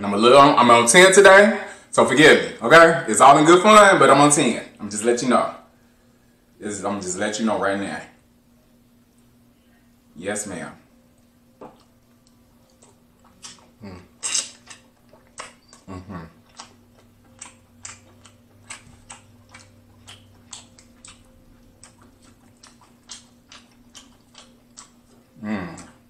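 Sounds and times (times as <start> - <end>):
chewing: 11.2 - 26.0
person murmuring: 13.8 - 14.2, 15.9 - 16.4, 25.4 - 26.0
crab shell clicking and cracking: 16.5 - 25.9.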